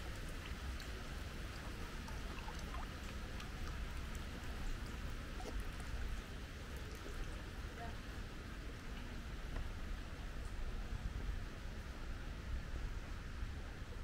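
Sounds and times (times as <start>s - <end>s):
water splashing: 0.0s - 7.8s
small water drips: 0.0s - 9.7s.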